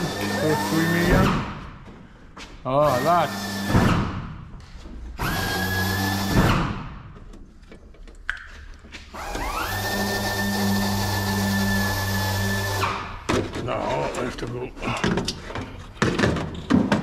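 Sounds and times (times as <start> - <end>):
power drill whine: 0.0 - 1.3, 2.9 - 4.0, 5.2 - 6.8, 9.2 - 13.2.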